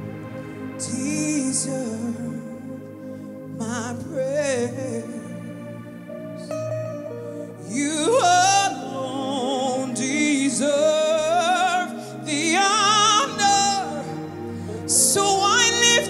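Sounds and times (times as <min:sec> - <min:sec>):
held backing chords: 0:00.0 - 0:16.0
woman singing into microphone: 0:07.6 - 0:16.0.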